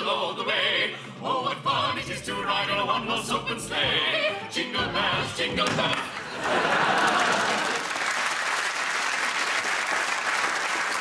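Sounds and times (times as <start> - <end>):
audience applauding: 6.1 - 11.0.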